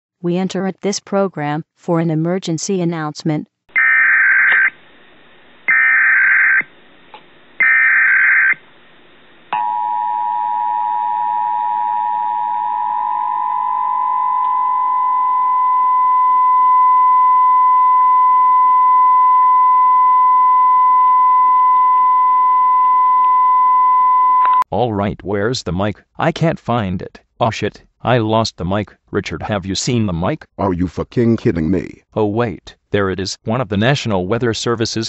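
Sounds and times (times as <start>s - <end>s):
harsh digital data screech: 3.7s - 4.8s, 5.7s - 6.7s, 7.6s - 8.6s.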